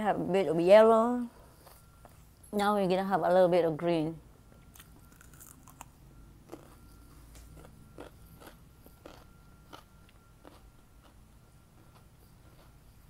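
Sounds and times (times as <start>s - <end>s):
crunchy chewing of cucumber: 4.7s - 13.0s.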